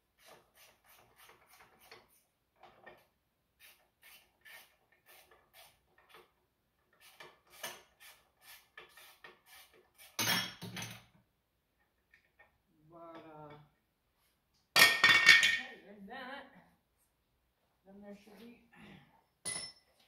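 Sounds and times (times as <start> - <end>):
hand tools scraping metal: 0.1 - 11.0.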